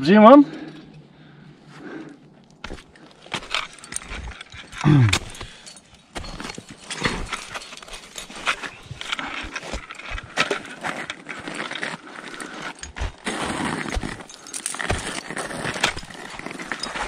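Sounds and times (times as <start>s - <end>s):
climbing hardware clinking: 2.6s - 17.0s
footsteps crunching in snow: 6.2s - 17.0s.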